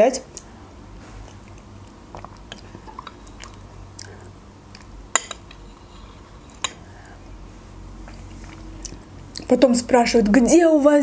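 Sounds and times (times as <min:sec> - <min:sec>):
quiet chewing: 0:00.4 - 0:07.3, 0:08.0 - 0:09.5
wet mouth clicks: 0:01.3 - 0:04.9
metal spoon clinking glass bowl: 0:05.1 - 0:05.7.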